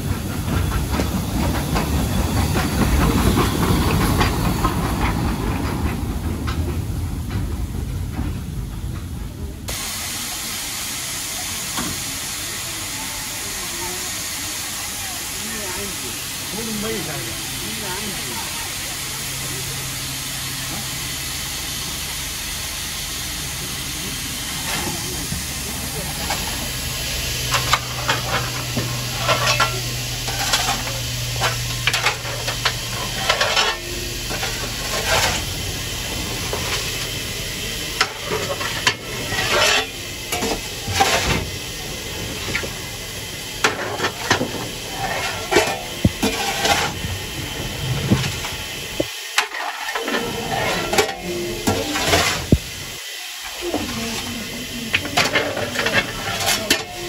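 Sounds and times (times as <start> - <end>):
fire and steam hissing: 0.0 - 57.0
shovel scraping coal: 43.8 - 47.0, 49.4 - 52.5.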